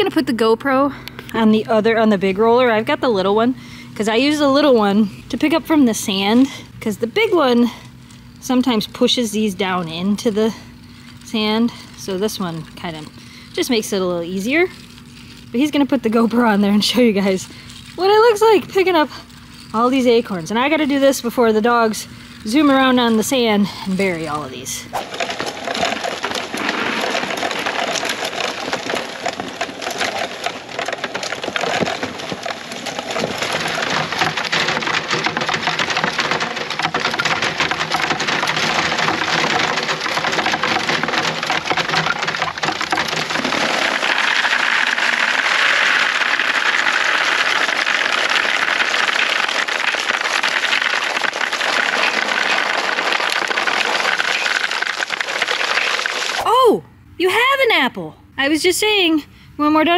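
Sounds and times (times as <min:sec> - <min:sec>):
acorns poured into plastic bucket: 0:11.0 - 0:56.4
acorns clicking in nut-gatherer: 0:24.9 - 0:56.5.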